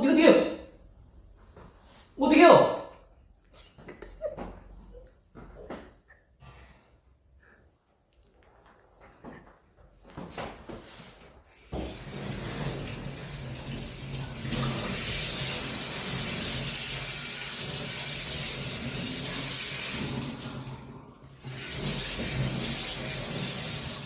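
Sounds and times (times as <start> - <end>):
faucet running into steel sink: 11.5 - 24.0.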